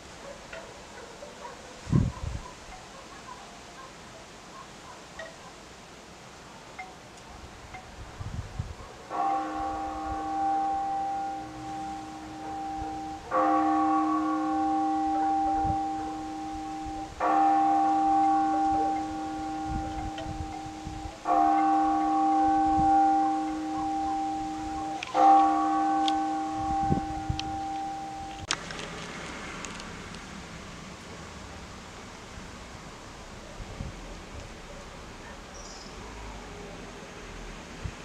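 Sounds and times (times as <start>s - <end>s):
large church bell tolling: 9.1s - 28.5s.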